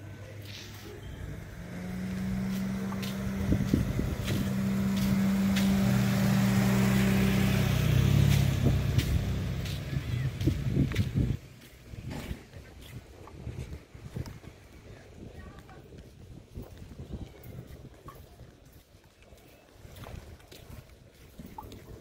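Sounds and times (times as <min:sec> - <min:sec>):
car driving past: 0:00.8 - 0:11.3.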